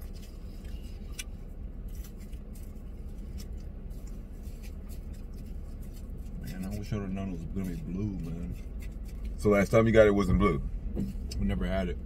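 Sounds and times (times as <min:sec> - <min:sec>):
low car cabin hum: 0:00.0 - 0:12.0
plastic spoon scraping shaved ice: 0:01.9 - 0:10.0.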